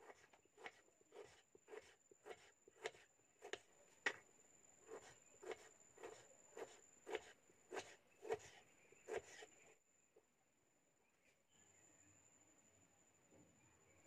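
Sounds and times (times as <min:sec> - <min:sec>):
knife slicing tomato: 0:00.0 - 0:03.7, 0:04.8 - 0:09.6.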